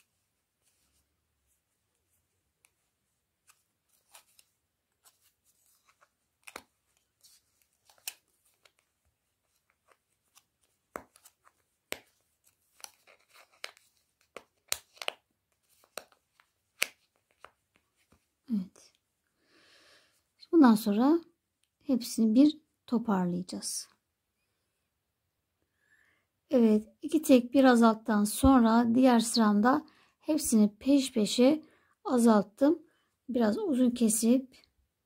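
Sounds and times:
plastic discs clicking: 11.0s - 17.6s.

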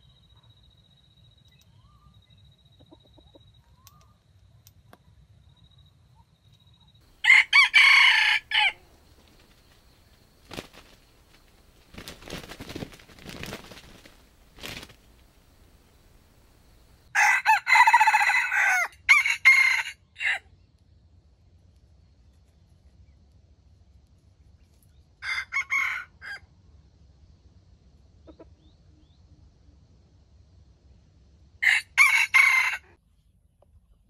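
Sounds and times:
rooster crowing: 7.1s - 9.1s, 16.6s - 20.4s, 25.2s - 26.4s, 31.6s - 33.0s
faint soft noises: 8.4s - 17.1s.

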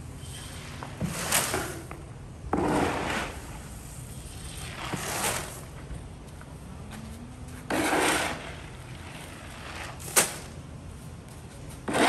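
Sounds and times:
shovel scraping concrete: 0.3s - 1.9s, 2.5s - 5.8s, 7.7s - 10.5s, 11.8s - 12.0s
plastic shovel scooping grain: 2.6s - 3.5s, 4.6s - 5.6s, 7.7s - 10.2s.

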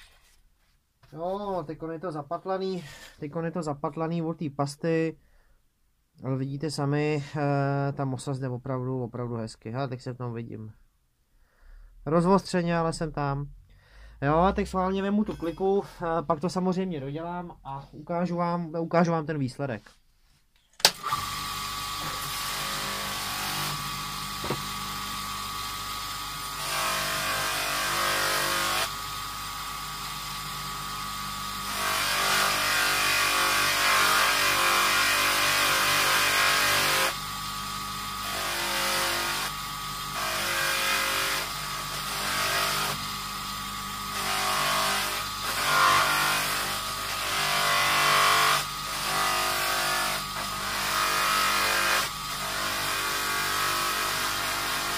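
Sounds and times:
electric motor humming: 21.0s - 54.9s.

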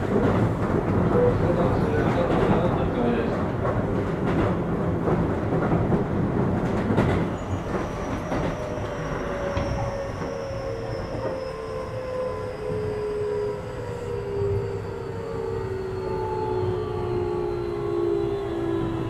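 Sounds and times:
train rail rumble: 0.0s - 19.0s
train motor whine: 7.4s - 19.0s.

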